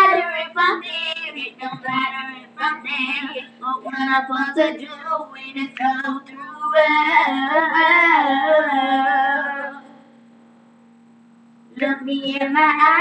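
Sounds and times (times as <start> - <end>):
girls singing long note: 0.0 - 10.0
steady low hum: 0.0 - 13.0.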